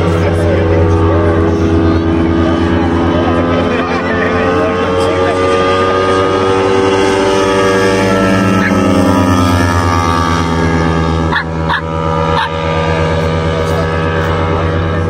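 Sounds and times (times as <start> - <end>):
large piston engine running: 0.0 - 15.0
dog barking: 11.3 - 12.6.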